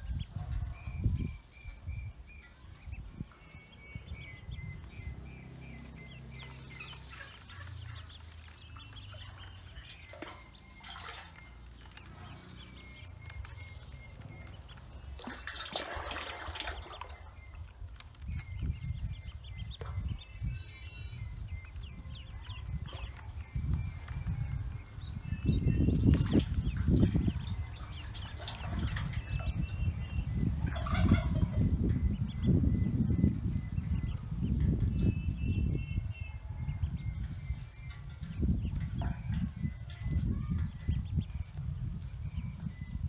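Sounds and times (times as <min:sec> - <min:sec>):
ducklings peeping: 0:00.0 - 0:43.0
water splashing: 0:05.4 - 0:12.9, 0:14.4 - 0:17.6, 0:26.0 - 0:29.6.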